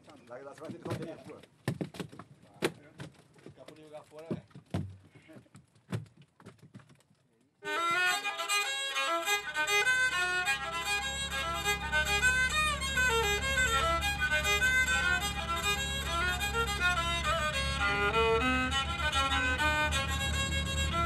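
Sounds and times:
bowed fiddle melody: 7.6s - 21.0s
low sustained accompaniment: 7.6s - 21.0s.

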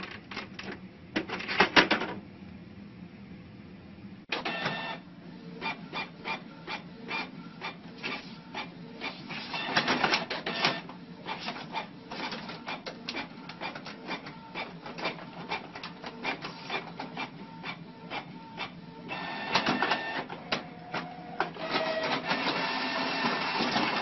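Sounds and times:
printer mechanism clicking and whirring: 4.3s - 5.0s, 5.6s - 24.0s.

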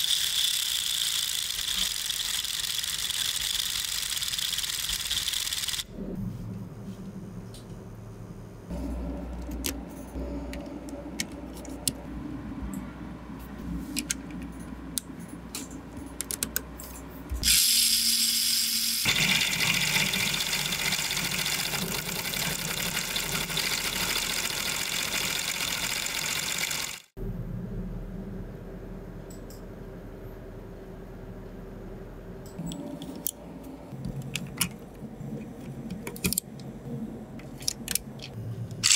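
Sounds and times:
toy drill motor whirring: 0.0s - 5.9s, 17.4s - 27.1s
low hum: 5.8s - 15.9s, 27.2s - 38.9s.

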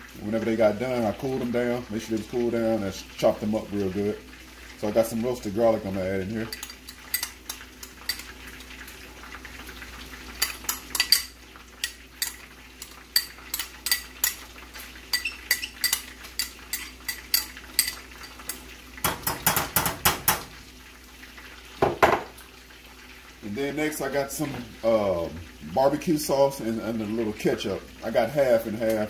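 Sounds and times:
spoon clinking on glass bowl: 6.5s - 7.4s, 10.4s - 12.4s, 15.1s - 18.6s.

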